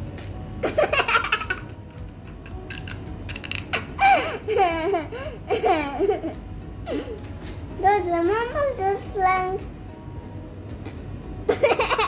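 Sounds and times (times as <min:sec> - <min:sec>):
boy laughing and giggling: 0:00.6 - 0:07.3, 0:11.5 - 0:12.0.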